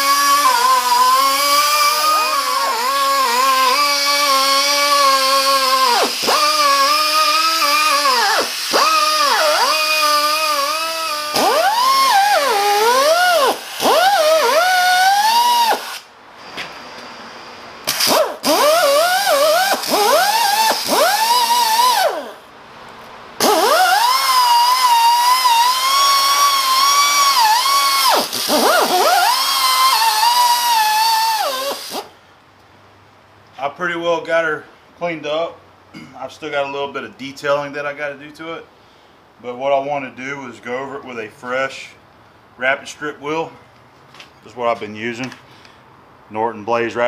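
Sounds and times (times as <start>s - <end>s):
pneumatic air grinder whining on metal: 0.0s - 16.1s, 17.8s - 22.4s, 23.4s - 32.2s.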